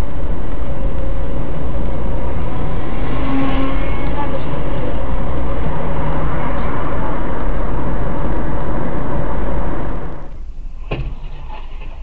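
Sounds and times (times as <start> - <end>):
car road and engine noise: 0.0 - 12.0
sharp knock: 10.9 - 11.3.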